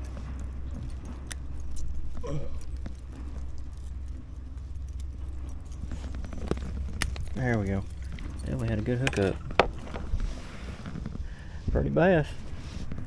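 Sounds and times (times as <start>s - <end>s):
hook and lure rattling: 0.0s - 11.1s
hands clicking and rustling: 0.0s - 11.2s
steady low rumble: 0.0s - 13.0s.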